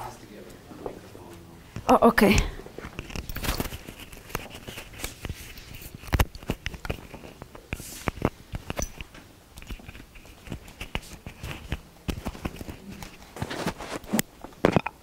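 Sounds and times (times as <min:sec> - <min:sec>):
microphone rubbing on clothing: 0:02.6 - 0:09.0, 0:09.6 - 0:14.3.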